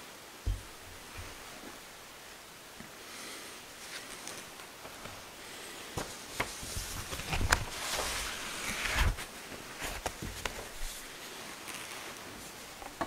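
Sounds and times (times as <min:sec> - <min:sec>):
vessels knocking on altar: 0:00.5 - 0:01.4
cloth rustling: 0:03.7 - 0:13.0
book page turning: 0:06.0 - 0:13.0.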